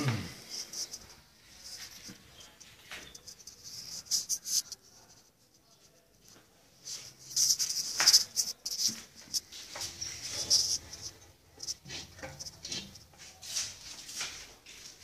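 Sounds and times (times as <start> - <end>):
phone rustling: 6.9 - 14.4.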